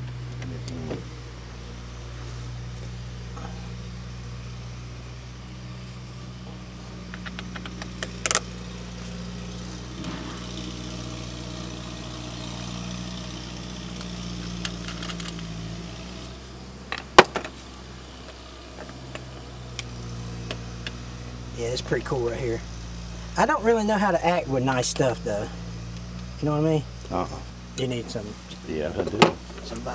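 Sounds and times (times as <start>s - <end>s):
low engine-like hum: 0.0s - 29.9s
sharp metal clank: 10.0s - 10.6s.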